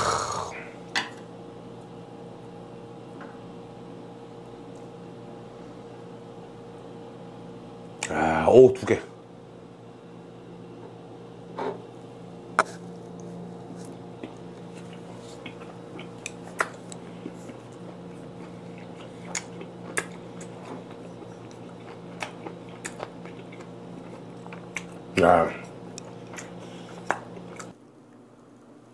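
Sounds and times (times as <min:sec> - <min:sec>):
person chewing food: 0:12.6 - 0:27.8.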